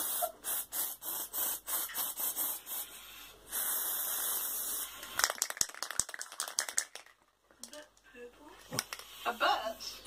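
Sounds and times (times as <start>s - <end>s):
aerosol spray hissing: 0.0s - 5.2s.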